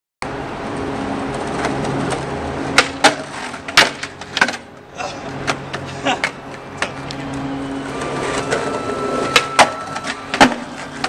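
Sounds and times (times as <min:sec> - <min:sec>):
skateboard wheels rolling on asphalt: 0:00.2 - 0:11.0
skateboard clacking on ground: 0:01.3 - 0:04.7, 0:05.3 - 0:11.0.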